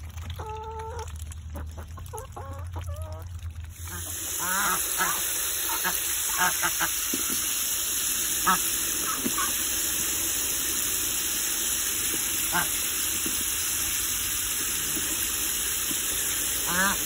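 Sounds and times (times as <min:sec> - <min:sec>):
water spraying into plastic tub: 0:00.0 - 0:17.0
ducks quacking: 0:03.8 - 0:07.0, 0:12.5 - 0:12.7, 0:16.6 - 0:17.0.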